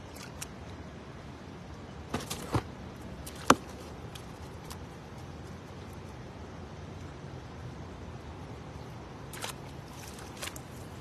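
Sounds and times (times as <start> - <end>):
background noise: 0.0 - 11.0
fish knocking and slapping: 2.1 - 4.8.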